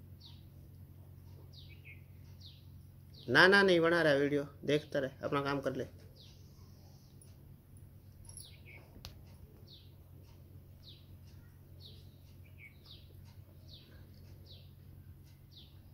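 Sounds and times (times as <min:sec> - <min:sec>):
bird chirping: 0:00.0 - 0:00.6, 0:01.3 - 0:03.5, 0:06.0 - 0:07.4, 0:08.2 - 0:15.9
steady low hum: 0:00.0 - 0:15.9.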